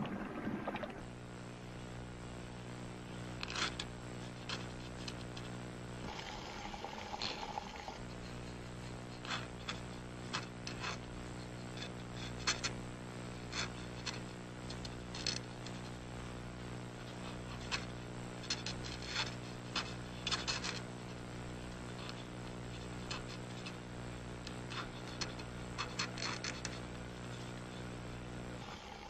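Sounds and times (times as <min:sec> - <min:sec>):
low electrical hum: 0:00.0 - 0:29.0
chart recorder pen scratching: 0:07.3 - 0:16.0, 0:17.0 - 0:21.2, 0:21.9 - 0:23.8, 0:24.5 - 0:27.8.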